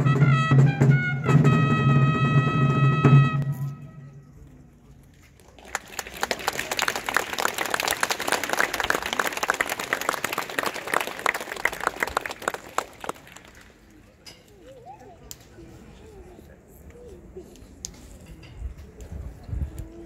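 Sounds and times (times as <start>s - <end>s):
crowd applauding: 5.4s - 14.0s.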